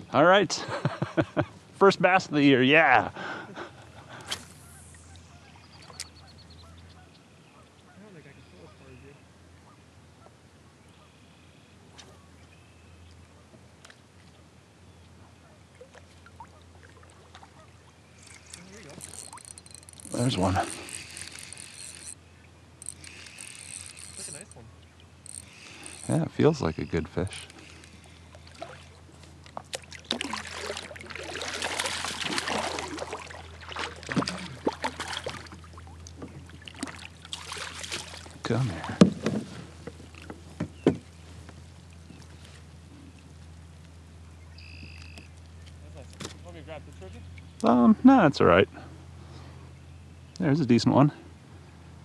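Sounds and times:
fishing rod and reel clicks: 4.2 - 6.2, 18.2 - 26.4, 27.1 - 28.4, 44.6 - 45.6
faint short bird calls: 4.4 - 13.2, 44.4 - 45.8
fish splashing at water surface: 27.5 - 38.4.

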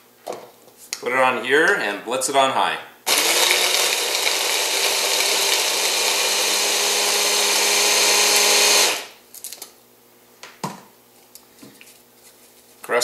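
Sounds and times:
stick blender grinding nuts: 3.1 - 9.2.

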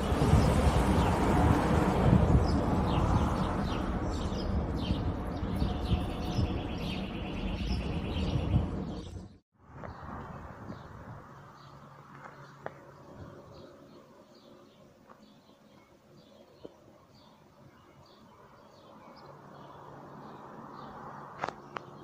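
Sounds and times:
aircraft rumbling overhead: 0.0 - 14.8
small birds chirping: 2.4 - 10.0, 10.7 - 22.0.

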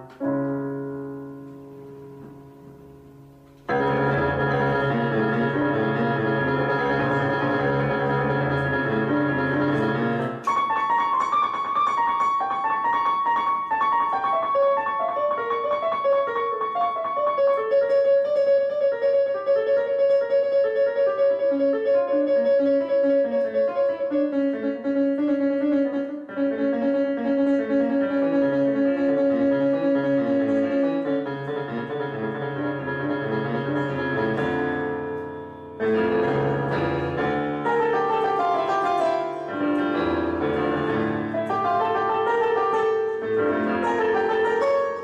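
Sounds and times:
slow piano music: 0.0 - 45.0.

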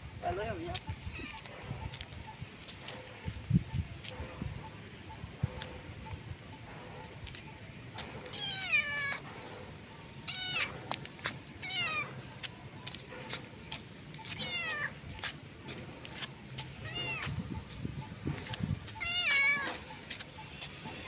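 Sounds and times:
cat meowing: 8.3 - 9.2, 10.3 - 10.7, 11.6 - 12.2, 14.4 - 15.0, 16.8 - 17.4, 19.0 - 19.8.

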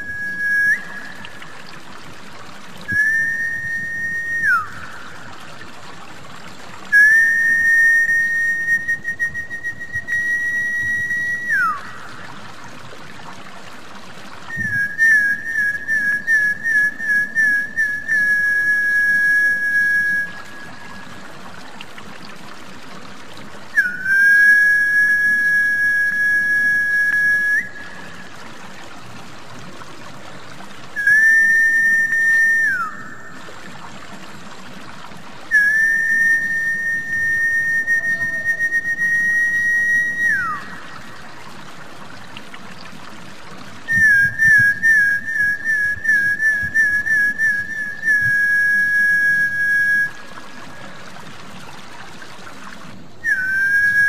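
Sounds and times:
high whistles: 0.0 - 1.5, 2.9 - 5.1, 6.9 - 12.0, 14.5 - 21.1, 23.8 - 28.3, 31.0 - 33.6, 35.5 - 41.0, 43.9 - 50.5, 53.2 - 54.0
water trickling: 0.0 - 54.0.

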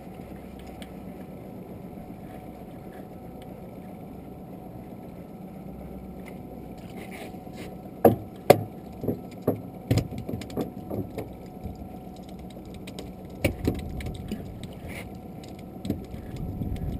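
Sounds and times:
steady low hum: 0.0 - 16.9
hollow knocks in a boat: 8.0 - 15.1, 15.8 - 16.9.

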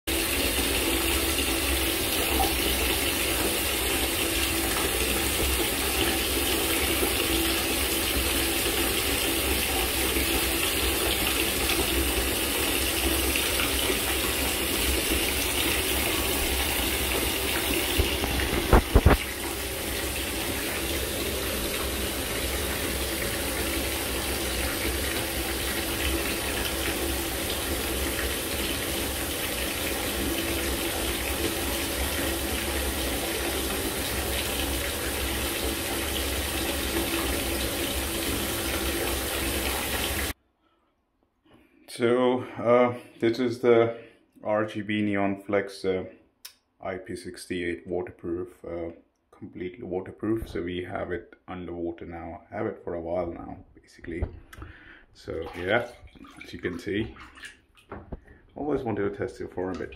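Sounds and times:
water running into standing water: 0.1 - 40.4, 54.1 - 59.9.

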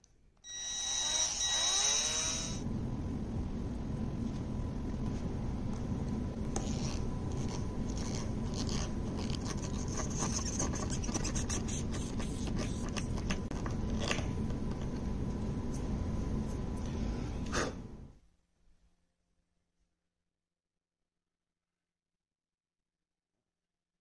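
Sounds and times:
low background noise: 0.0 - 19.0.

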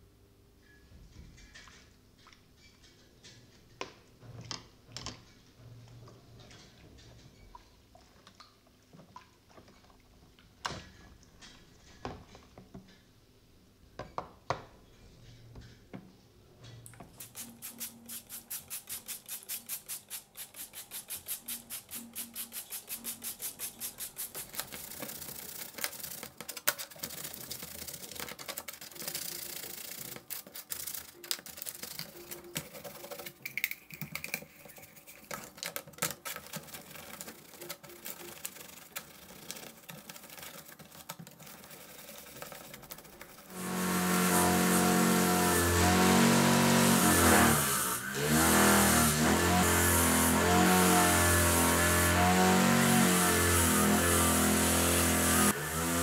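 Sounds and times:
bristle brush scrubbing metal parts: 17.0 - 56.0.

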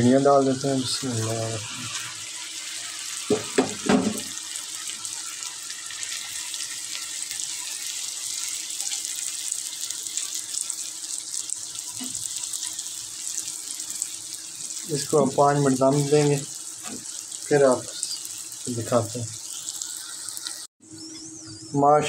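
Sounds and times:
food sizzling in hot oil: 0.0 - 21.4.

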